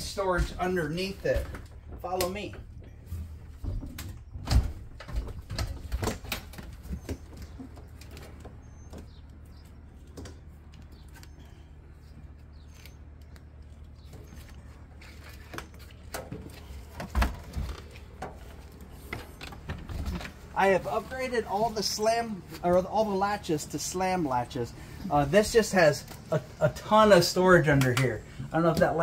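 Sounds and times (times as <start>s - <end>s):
footsteps knocking and thudding: 0.0s - 9.5s
steady low hum: 0.0s - 29.0s.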